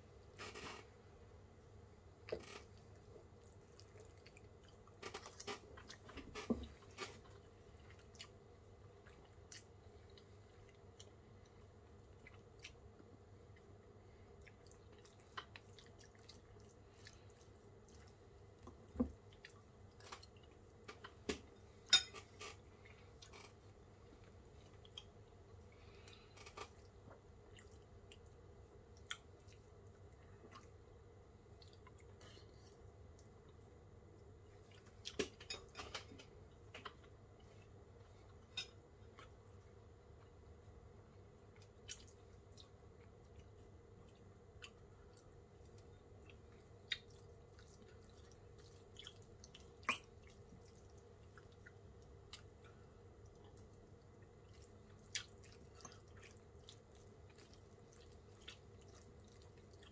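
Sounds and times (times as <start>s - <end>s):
person chewing: 2.2s - 23.6s, 24.2s - 30.9s, 41.5s - 59.9s.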